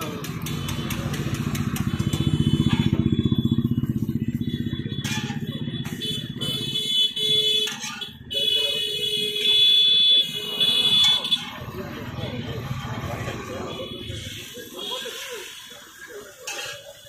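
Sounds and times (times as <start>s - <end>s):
motorcycle engine running: 0.0s - 9.0s.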